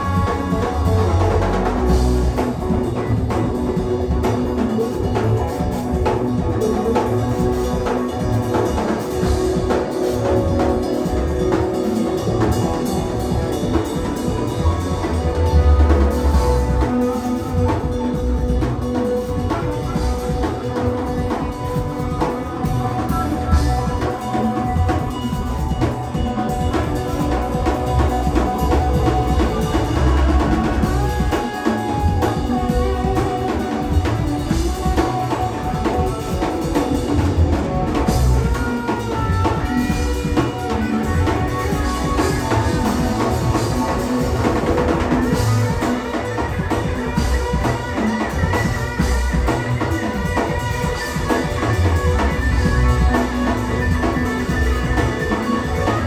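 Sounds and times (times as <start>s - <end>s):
drum kit: 0.0s - 56.0s
electric bass: 0.0s - 56.0s
electric guitar: 0.0s - 56.0s
keyboards: 0.0s - 56.0s.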